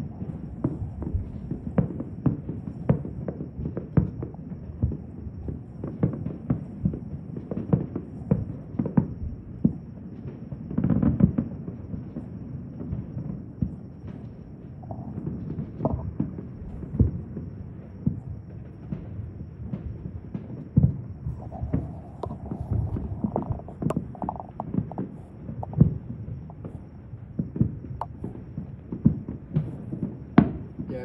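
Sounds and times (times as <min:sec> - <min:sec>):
fireworks bangs and pops: 0:00.0 - 0:31.0
fireworks crackling: 0:00.0 - 0:31.0
low steady rumble: 0:21.0 - 0:25.8.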